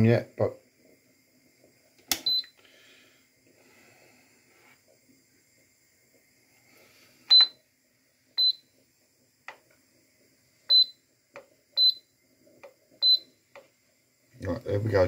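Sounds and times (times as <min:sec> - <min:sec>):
air fryer beeping: 0:02.1 - 0:02.6, 0:07.3 - 0:07.6, 0:08.4 - 0:08.8, 0:10.7 - 0:11.0, 0:11.8 - 0:12.1, 0:13.0 - 0:13.4.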